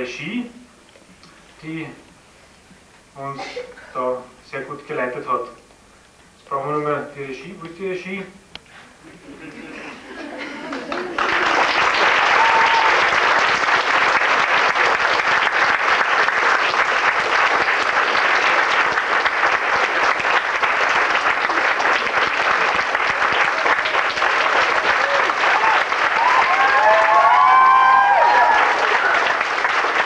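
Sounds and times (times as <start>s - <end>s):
audience applauding: 10.1s - 30.0s
voices over clapping: 10.7s - 30.0s.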